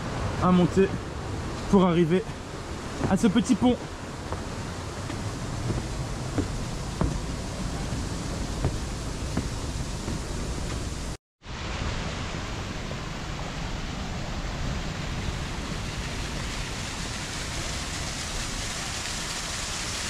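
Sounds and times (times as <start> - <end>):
waterfall splashing into pool: 15.0 - 20.0.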